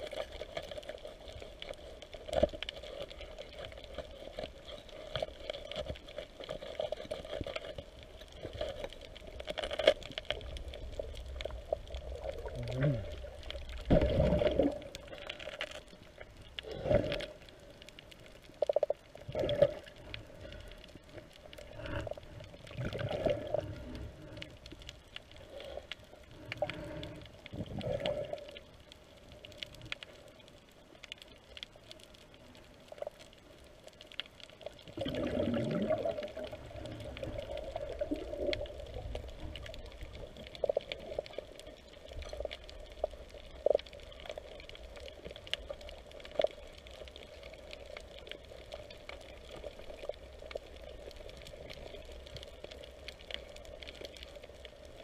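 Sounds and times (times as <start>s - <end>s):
underwater sloshing and bubbling: 0.0s - 55.0s
burst of bubbles: 13.9s - 15.0s, 22.7s - 23.8s, 34.9s - 38.6s.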